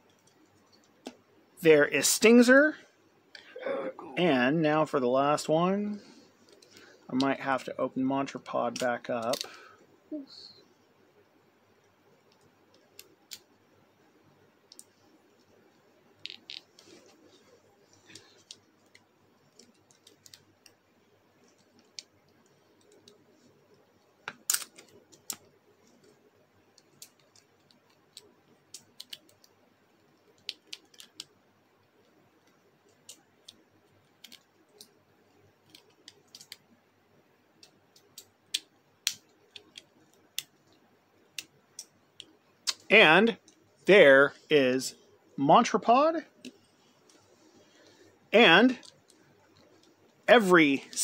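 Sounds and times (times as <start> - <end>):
plastic clicks and snaps: 37.6 - 43.6.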